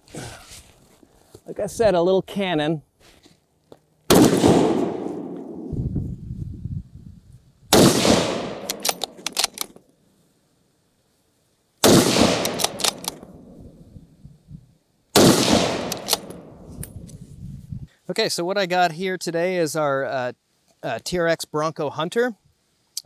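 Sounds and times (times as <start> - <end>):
rifle shots echoing: 4.1 - 5.7, 7.7 - 9.5, 11.8 - 13.5, 15.2 - 16.7
rifle bolt metallic clicks: 8.0 - 9.8, 11.8 - 13.3, 15.2 - 17.2.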